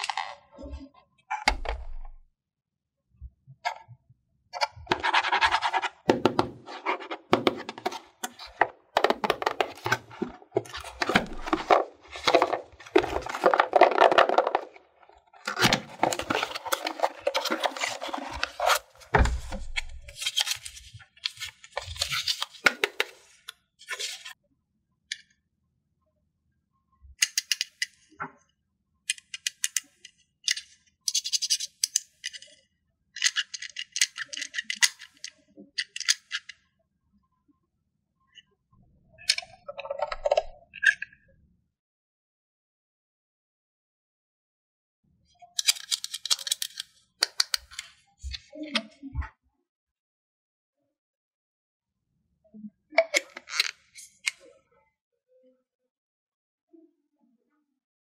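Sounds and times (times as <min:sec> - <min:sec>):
cardboard and paper crinkling: 0:06.7 - 0:14.8, 0:15.4 - 0:23.1.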